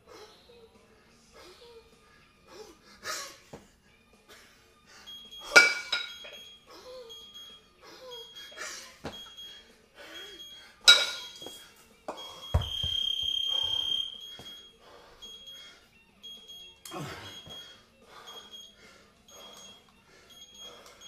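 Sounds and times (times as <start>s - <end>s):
electronic timer beeping: 5.1s - 11.6s, 12.2s - 21.0s
kettlebells clinking: 5.4s - 6.5s, 10.8s - 11.6s
kettlebells thudding on floor: 12.5s - 13.4s.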